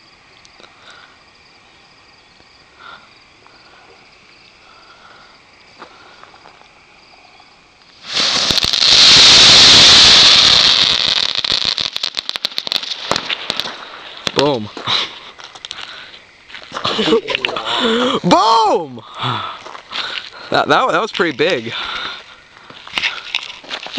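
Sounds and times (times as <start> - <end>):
crackler fireworks crackling: 7.7 - 23.9.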